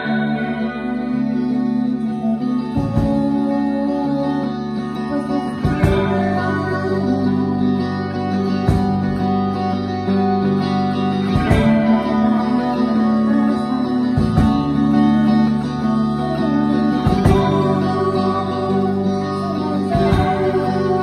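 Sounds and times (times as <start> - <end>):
guitar chords ringing: 0.0 - 21.0
heavy drum accents: 8.6 - 9.6, 11.2 - 12.7, 14.2 - 15.4, 17.0 - 18.7.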